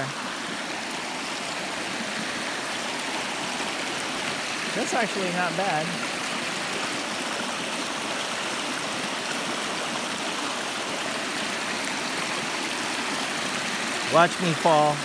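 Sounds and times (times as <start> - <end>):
creek water rushing: 0.0 - 15.0.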